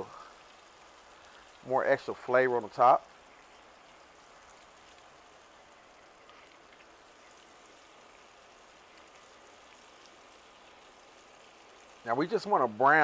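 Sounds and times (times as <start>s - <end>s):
soft crackles: 0.0s - 12.3s
steak sizzling on grill: 0.0s - 13.0s.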